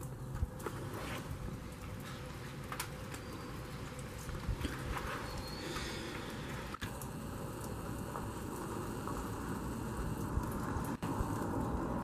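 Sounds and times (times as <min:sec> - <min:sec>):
light rain on water: 0:00.0 - 0:12.0
wind rumble on microphone: 0:04.2 - 0:05.5.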